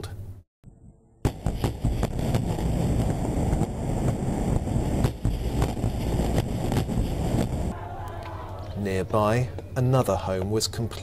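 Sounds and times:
low rumble with crackles: 0:00.7 - 0:07.8
explosion blast: 0:01.2 - 0:07.8
wind buffeting microphone: 0:01.7 - 0:07.8.

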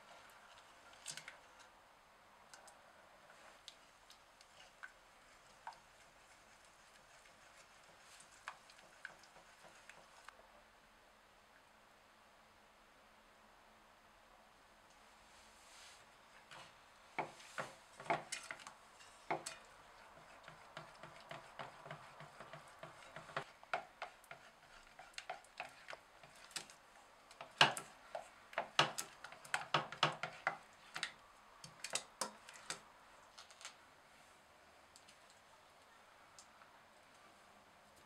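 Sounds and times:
spatula scraping saucepan: 0:16.4 - 0:32.8.

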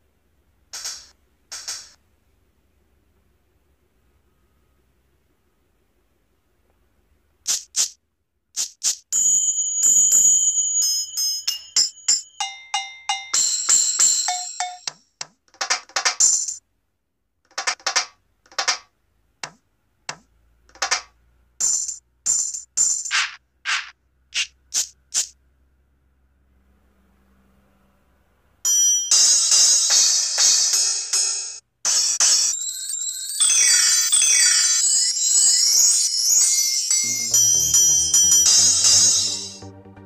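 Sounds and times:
electronic percussion hits: 0:00.8 - 0:02.0, 0:37.1 - 0:40.0.

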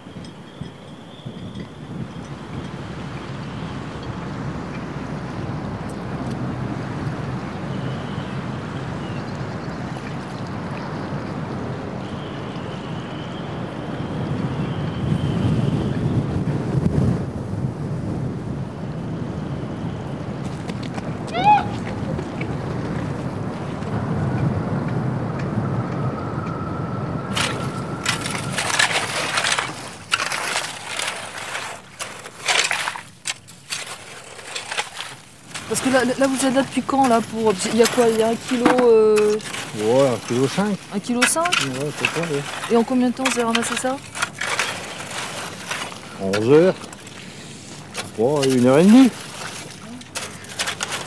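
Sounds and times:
faint high whistle: 0:00.0 - 0:02.3, 0:25.6 - 0:29.1
outdoor rush: 0:00.0 - 0:51.0
wind buffeting microphone: 0:00.0 - 0:51.0
rake scraping through wet gravel: 0:27.3 - 0:51.0.

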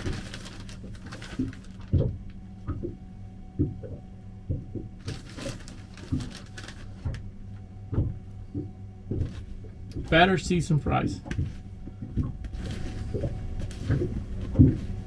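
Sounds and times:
bag crinkling: 0:00.0 - 0:02.0, 0:05.0 - 0:07.1
steady low hum: 0:00.0 - 0:15.0.

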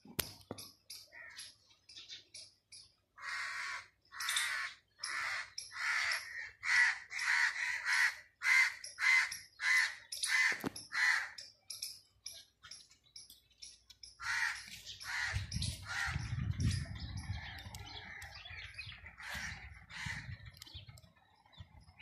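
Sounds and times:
crows cawing: 0:01.1 - 0:01.5, 0:03.2 - 0:11.5, 0:14.2 - 0:16.5, 0:17.4 - 0:20.7.

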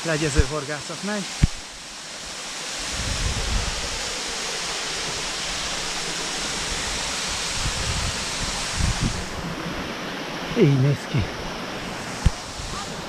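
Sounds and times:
waterfall cascading over rocks: 0:00.0 - 0:13.0.

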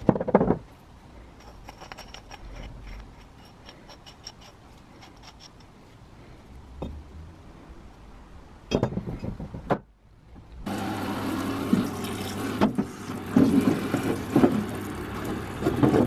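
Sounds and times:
metal parts clattering: 0:01.4 - 0:05.7
metal parts clicking: 0:01.4 - 0:05.8.

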